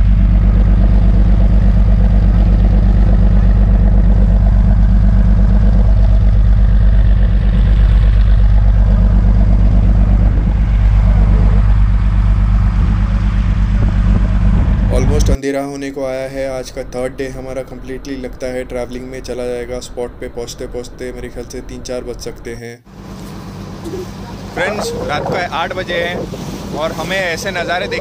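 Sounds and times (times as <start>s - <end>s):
boat engine droning: 0.0s - 15.4s, 16.0s - 28.0s.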